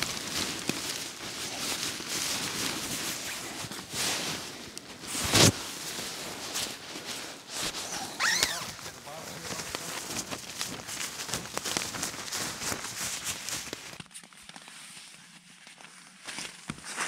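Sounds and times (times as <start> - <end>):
tent fabric rustling and flapping: 0.0 - 17.0
short high squeak: 8.0 - 8.7.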